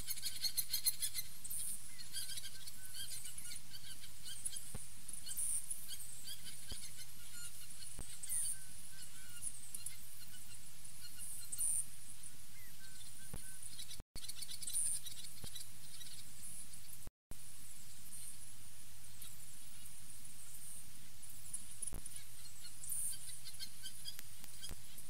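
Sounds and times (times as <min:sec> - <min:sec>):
birds chirping and whistling: 0:00.0 - 0:17.1, 0:21.4 - 0:25.0
faint clicks: 0:24.0 - 0:24.9.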